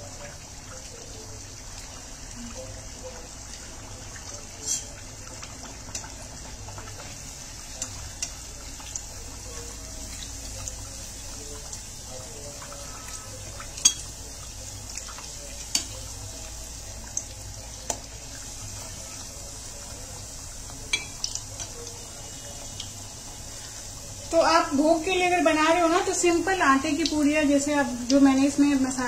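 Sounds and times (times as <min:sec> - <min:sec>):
oil sizzling: 0:00.0 - 0:29.0
sharp clicks in frying oil: 0:04.2 - 0:09.1, 0:13.7 - 0:14.2, 0:14.9 - 0:16.0, 0:17.0 - 0:18.2, 0:20.6 - 0:23.0, 0:28.0 - 0:28.3.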